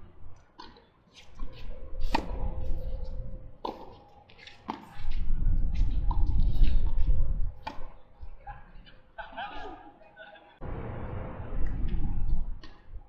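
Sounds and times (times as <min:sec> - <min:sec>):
low rumble: 0:10.6 - 0:13.0.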